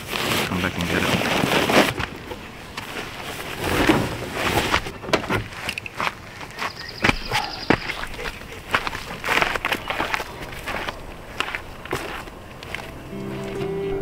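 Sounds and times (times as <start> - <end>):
tent fabric crinkling: 0.0 - 6.4.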